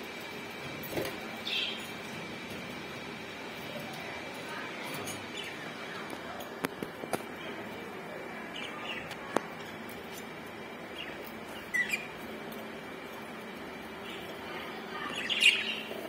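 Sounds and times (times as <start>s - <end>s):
budgerigars chirping: 11.6s - 12.1s.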